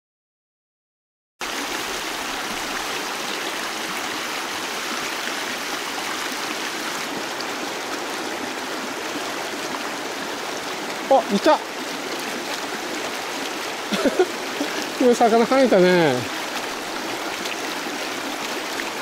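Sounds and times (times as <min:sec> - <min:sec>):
river rushing over stones: 0:01.4 - 0:19.0.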